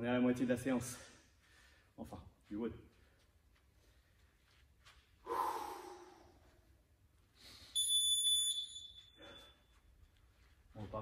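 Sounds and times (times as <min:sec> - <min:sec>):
heavy breath out: 0:05.2 - 0:06.4
high electronic beep: 0:07.8 - 0:09.5.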